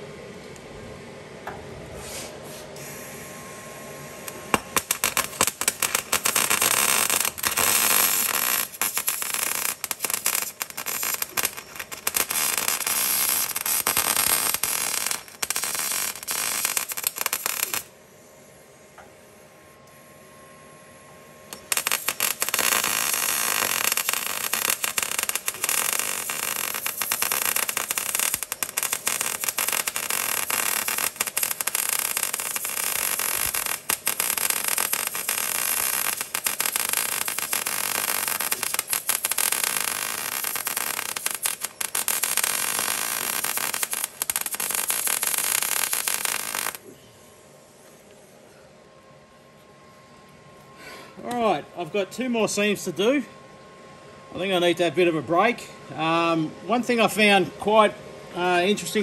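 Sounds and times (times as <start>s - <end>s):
welding arc crackling: 4.2s - 18.0s, 21.5s - 46.9s.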